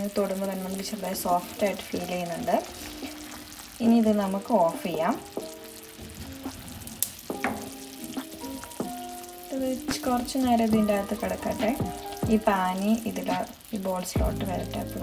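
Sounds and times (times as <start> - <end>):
sugar syrup bubbling in a pan: 0.0 - 15.0
wooden spoon stirring: 0.8 - 12.4
background music with singing: 7.3 - 15.0.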